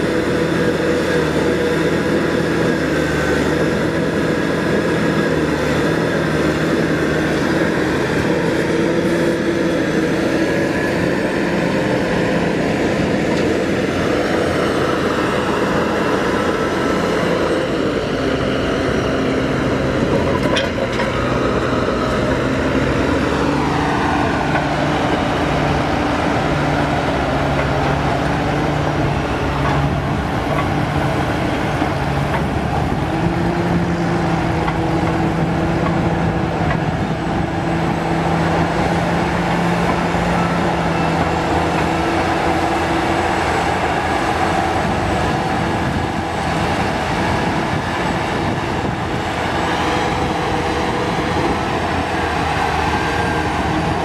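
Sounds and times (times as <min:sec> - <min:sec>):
track loader diesel engine: 0:00.0 - 0:54.0.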